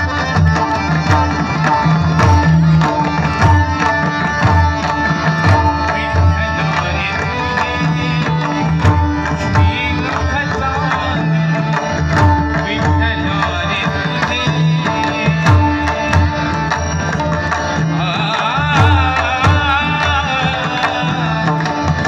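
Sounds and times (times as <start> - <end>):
massed drums playing rhythm: 0.0 - 6.4
devotional singing: 17.9 - 22.0.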